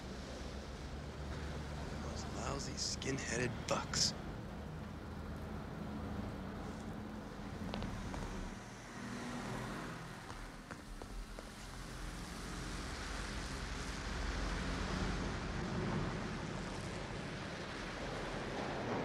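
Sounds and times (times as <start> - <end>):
elevated subway train rumbling: 14.2 - 19.0.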